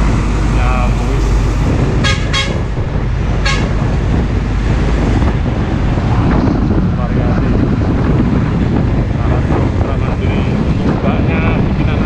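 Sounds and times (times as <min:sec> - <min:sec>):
low rumble of truck traffic: 0:00.0 - 0:12.0
truck horn toots: 0:01.9 - 0:02.8, 0:03.4 - 0:04.0.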